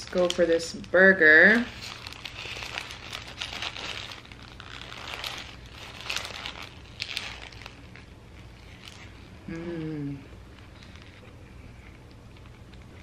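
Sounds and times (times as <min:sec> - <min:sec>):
paper wrapper crinkling: 0:00.0 - 0:09.4, 0:10.5 - 0:13.0.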